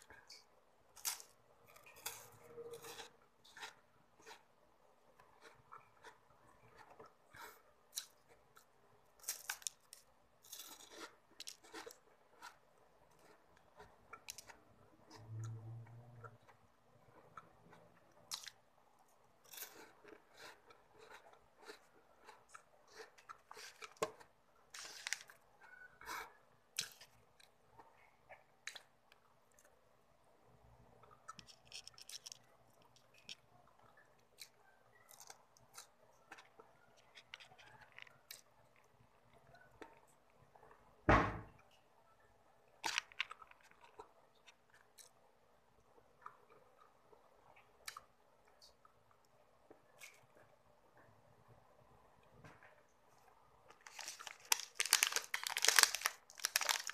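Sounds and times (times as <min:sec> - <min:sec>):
deep thump: 0:41.1 - 0:41.5
crunching wafer stick: 0:53.7 - 0:56.9.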